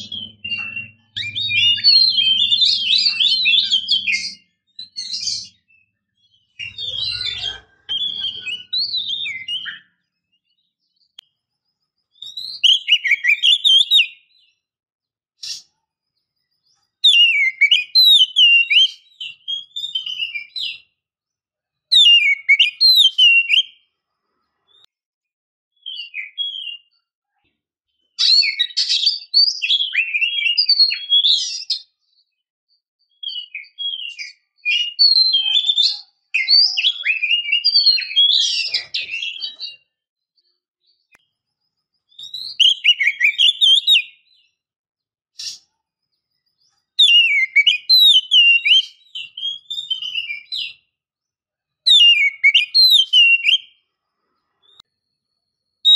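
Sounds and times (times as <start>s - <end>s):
bird singing: 0.0s - 14.7s, 15.4s - 21.0s, 21.8s - 24.9s, 25.8s - 44.7s, 45.4s - 51.0s, 51.7s - 55.9s.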